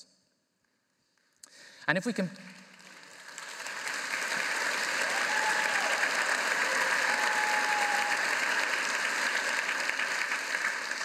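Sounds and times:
large audience applauding: 2.5 - 11.0.

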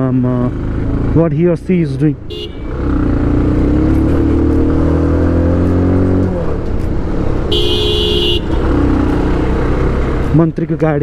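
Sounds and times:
motorcycle engine: 0.0 - 11.0
vehicle horn: 2.3 - 2.8, 7.5 - 8.6.

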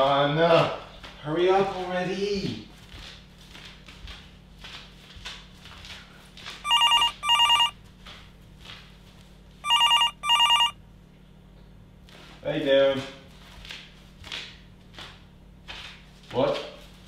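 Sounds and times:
phone ringing: 6.7 - 7.7, 9.6 - 10.8.

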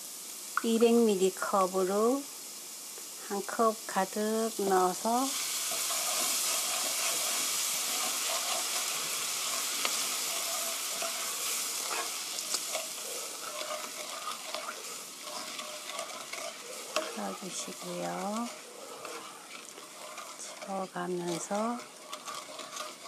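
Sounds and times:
food sizzling in pan: 0.0 - 23.0
spatula scraping pan: 4.5 - 23.0.

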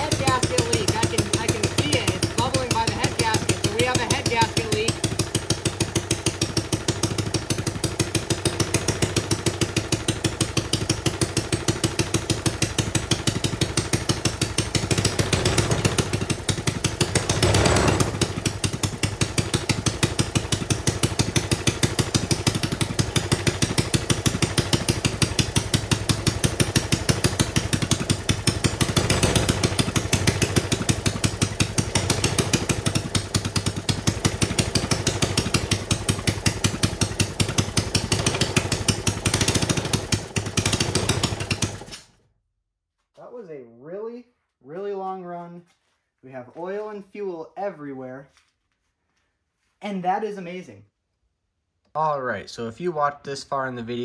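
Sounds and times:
single-cylinder engine running: 0.0 - 42.1.

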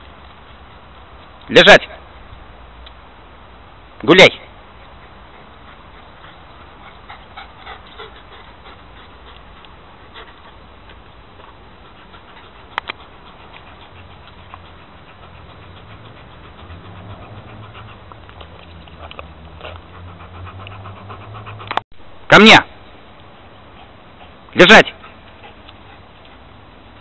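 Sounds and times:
dog panting: 4.6 - 21.8, 23.3 - 27.0.

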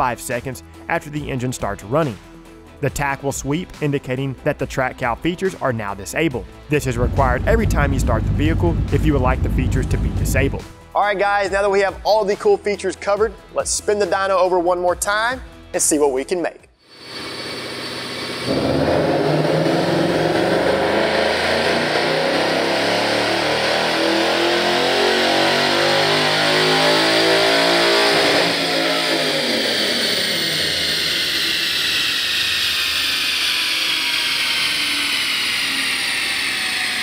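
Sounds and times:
high whine of rollers winding down: 6.8 - 10.6, 16.9 - 37.0
car engine revving at full throttle: 6.9 - 10.6, 16.9 - 37.0.

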